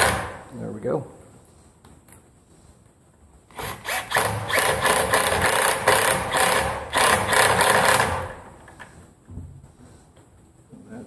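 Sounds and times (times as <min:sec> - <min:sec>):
impact driver rattling: 0:00.0 - 0:00.4, 0:03.6 - 0:08.5.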